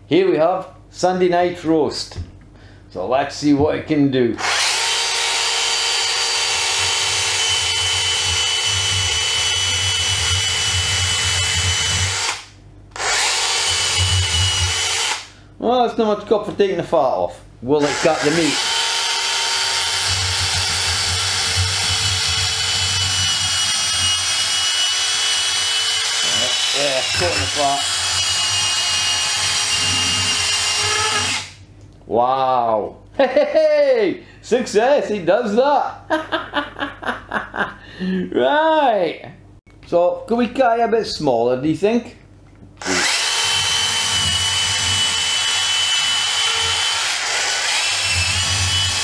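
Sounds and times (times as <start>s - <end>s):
cordless saw whining through meat: 4.4s - 15.3s, 17.8s - 31.6s, 42.8s - 49.0s.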